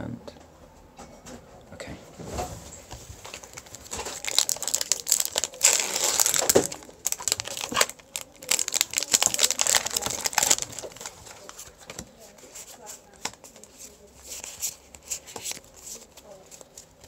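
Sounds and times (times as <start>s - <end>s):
foil wrapper crinkling and tearing: 3.2s - 12.0s.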